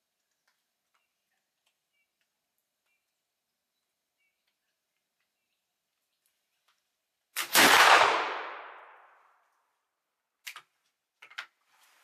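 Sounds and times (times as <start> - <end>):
flintlock rifle gunshot: 7.4 - 9.2.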